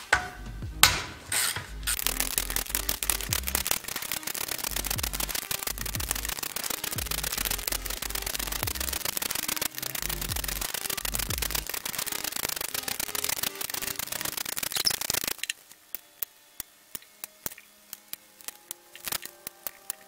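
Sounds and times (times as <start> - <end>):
ratchet wrench clicking: 1.3 - 15.6.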